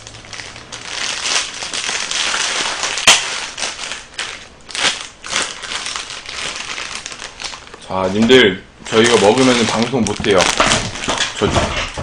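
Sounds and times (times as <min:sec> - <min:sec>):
plastic bag crinkling: 0:00.0 - 0:12.0
sharp snap: 0:03.0 - 0:03.3.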